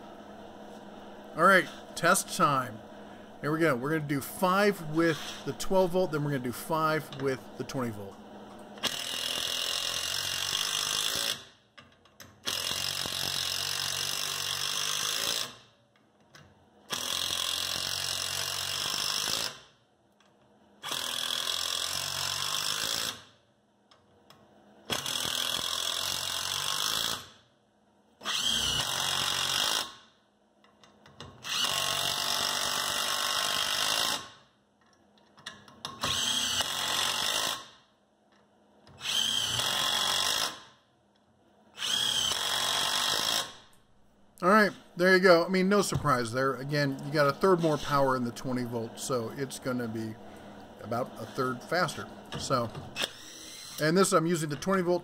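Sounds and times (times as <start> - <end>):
impact driver driving screws into wood: 8.8 - 11.5, 12.4 - 15.6, 16.9 - 19.7, 20.8 - 23.3, 24.9 - 27.4, 28.2 - 30.0, 31.3 - 34.4, 35.8 - 37.8, 38.9 - 40.7, 41.8 - 43.7, 53.0 - 53.8.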